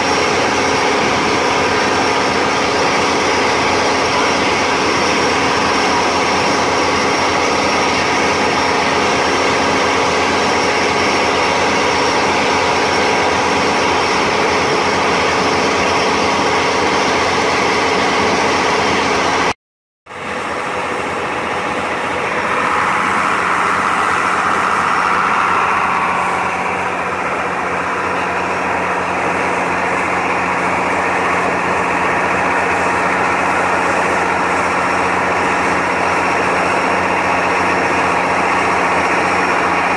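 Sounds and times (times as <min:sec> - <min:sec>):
motorboat engine running: 0:00.0 - 0:19.5, 0:20.1 - 0:39.9
water rushing past hull: 0:20.3 - 0:36.4.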